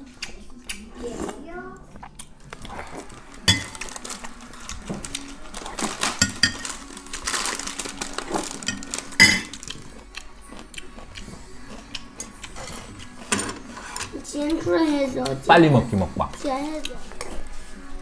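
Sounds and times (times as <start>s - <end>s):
chewing: 0.0s - 15.4s, 16.2s - 18.0s
slurping soup: 1.0s - 3.4s, 11.1s - 14.2s
spoon clinking on ceramic bowl: 3.5s - 3.8s, 6.2s - 6.7s, 8.7s - 9.6s.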